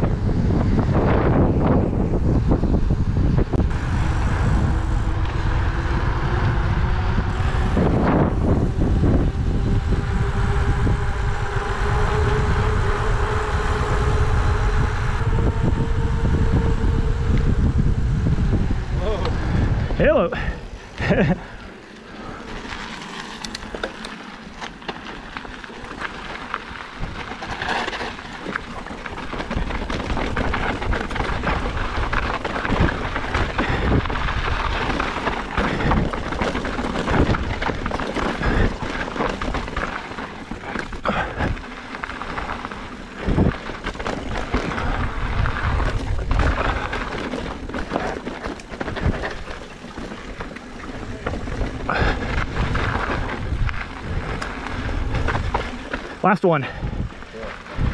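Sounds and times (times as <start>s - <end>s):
bike tyres on dirt and rock: 0.0s - 57.9s
low steady rumble: 0.0s - 57.9s
bike rattling with sharp knocks: 20.4s - 57.9s.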